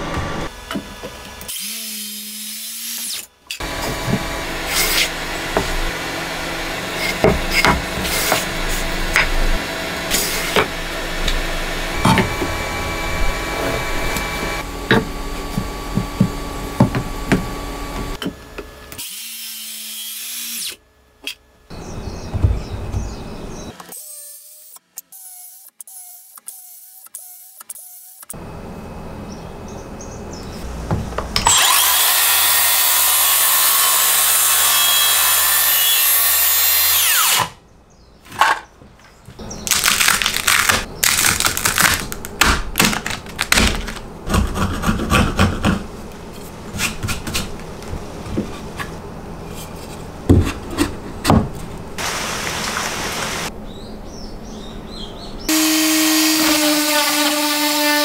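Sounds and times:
circular saw cutting wood: 0:01.3 - 0:18.2, 0:31.4 - 0:37.6, 0:55.5 - 0:58.0
steady hum: 0:03.6 - 0:18.9
wood slivers cracking and snapping: 0:39.0 - 0:44.7.

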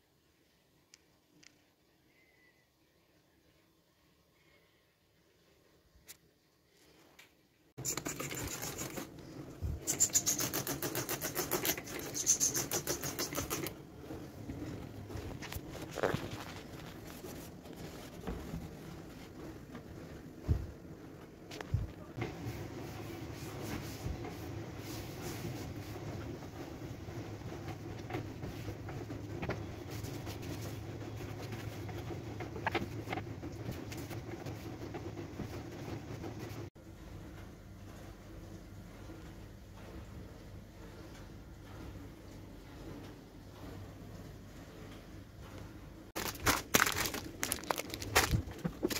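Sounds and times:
cloth wiping drawer: 0:07.8 - 0:20.9
scrubbing on a shelf: 0:07.8 - 0:20.9, 0:46.2 - 0:48.9.

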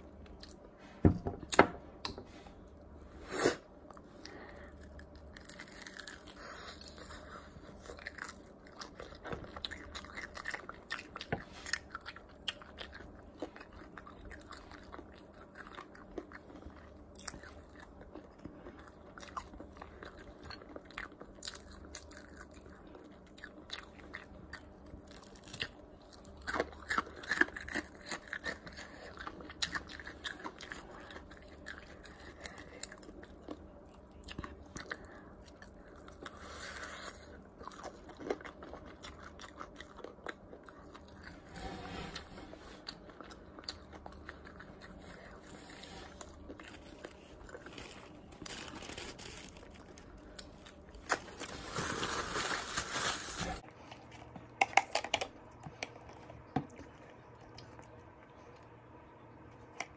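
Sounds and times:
chewing fried chicken: 0:03.9 - 0:41.5, 0:42.5 - 0:51.6, 0:53.6 - 0:59.9
crunching of breaded skin: 0:04.8 - 0:16.6.

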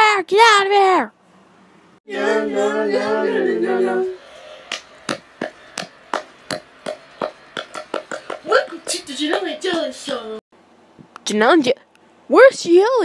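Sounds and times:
sharp taps: 0:04.7 - 0:10.2.

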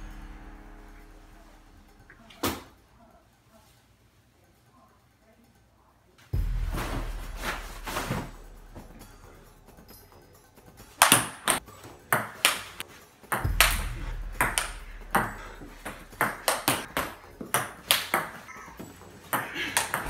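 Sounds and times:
table tennis ball hits: 0:11.0 - 0:18.5, 0:19.3 - 0:20.0.

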